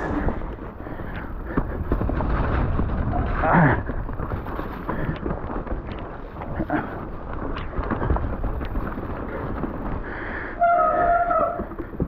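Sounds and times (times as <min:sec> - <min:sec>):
bike frame and chain rattling: 0:00.0 - 0:12.0
wind across microphone: 0:00.0 - 0:12.0
steady squeal: 0:10.5 - 0:12.0.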